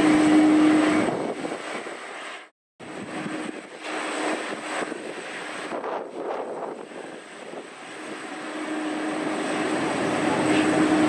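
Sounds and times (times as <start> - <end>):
jet engines idling: 0.0 - 11.0.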